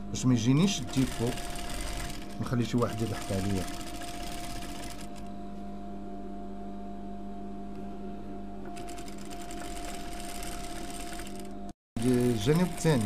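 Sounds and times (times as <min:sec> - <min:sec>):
sewing machine running: 0:00.8 - 0:05.3, 0:08.8 - 0:13.0.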